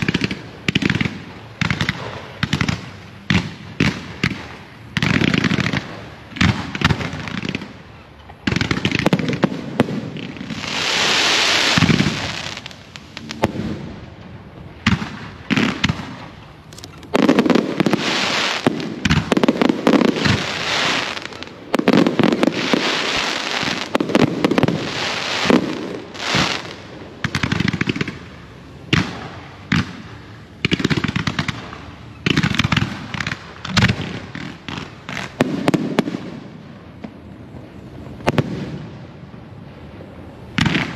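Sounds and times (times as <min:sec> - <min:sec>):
fireworks bangs and crackling: 0:00.0 - 0:40.9
rushing hiss: 0:10.4 - 0:13.5.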